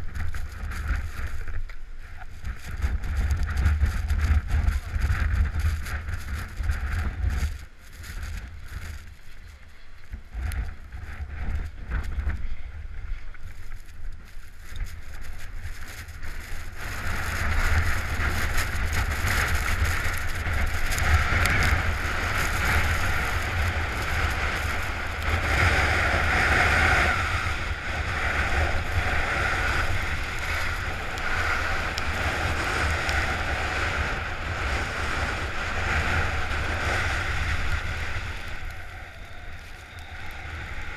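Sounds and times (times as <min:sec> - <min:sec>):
wind rumbling on microphone: 0:00.0 - 0:40.9
skis hissing over snow: 0:13.4 - 0:40.9.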